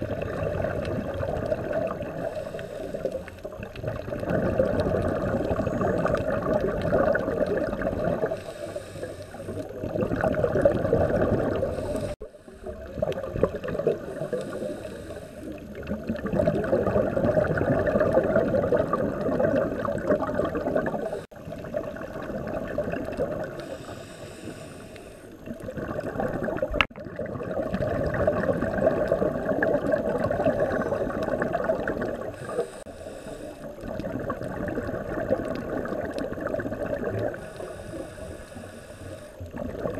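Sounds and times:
bubbling underwater exhalations: 0.0 - 8.6, 9.4 - 23.6, 25.4 - 32.8, 33.6 - 37.8, 39.4 - 39.9
faint inhalation hiss: 1.8 - 3.8, 8.0 - 10.2, 11.4 - 15.9, 20.8 - 21.6, 23.4 - 25.7, 30.4 - 31.5, 32.2 - 34.0, 37.0 - 39.9.

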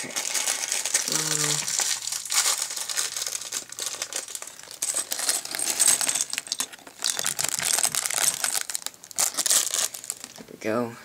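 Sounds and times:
plastic pieces clattering on cardboard: 0.0 - 10.5.

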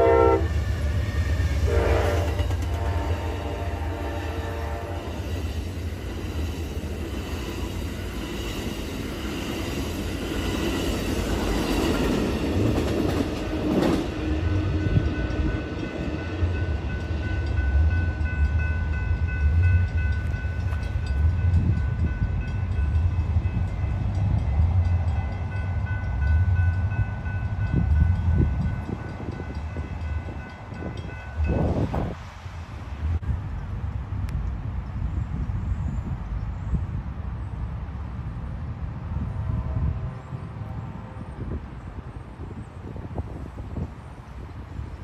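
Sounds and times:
train wheels on rails: 0.0 - 45.0
wind gusting on microphone: 0.0 - 45.0
crossing warning bell ringing: 14.4 - 32.1.

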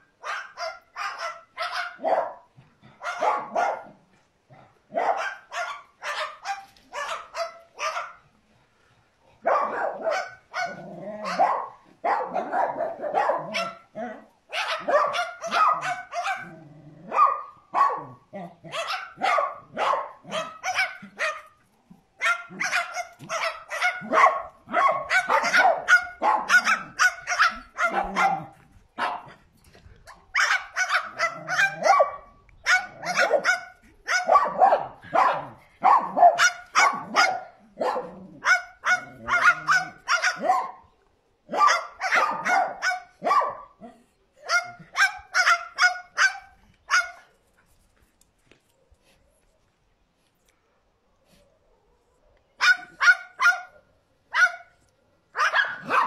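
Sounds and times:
cockatoo imitating dog barks: 9.5 - 21.5, 22.2 - 29.3, 30.3 - 40.8, 55.4 - 56.0.

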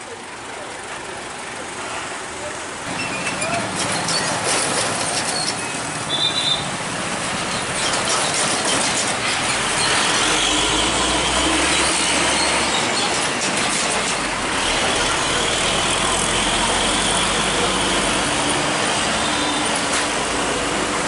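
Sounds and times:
heavy vehicles passing: 0.0 - 21.0
rattling: 7.2 - 10.6.

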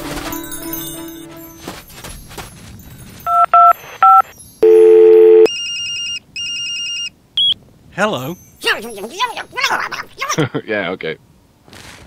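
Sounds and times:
trilling phone ring: 3.3 - 7.1
held telephone tone: 3.3 - 7.6
keypad beeps: 3.3 - 7.6.

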